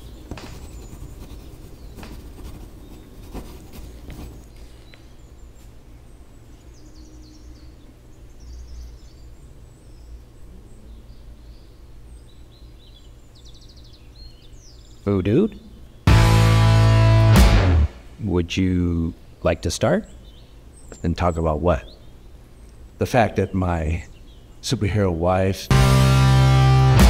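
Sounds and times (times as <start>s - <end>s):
faint bird chirps: 0.0s - 16.0s.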